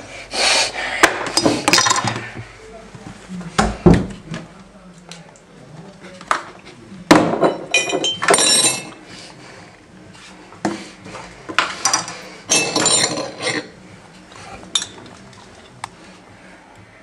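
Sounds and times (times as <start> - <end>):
glass jars clattering: 7.3 - 9.0, 11.8 - 13.7, 14.7 - 15.1
metal spoon clinking and scraping: 11.8 - 13.7.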